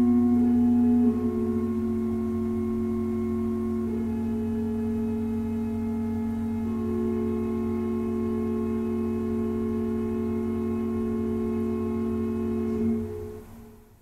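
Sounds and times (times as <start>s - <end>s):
choir holding a chord: 0.0s - 13.4s.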